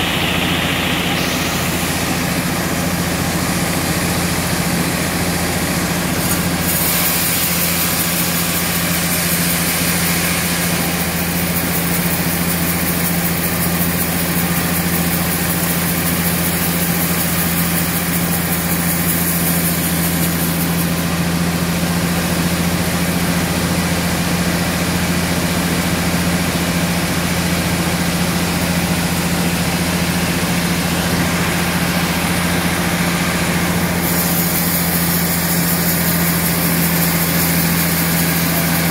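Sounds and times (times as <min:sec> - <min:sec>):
saw blade hissing through log: 0:06.1 - 0:21.1, 0:30.1 - 0:38.9
band saw hum: 0:27.8 - 0:38.9.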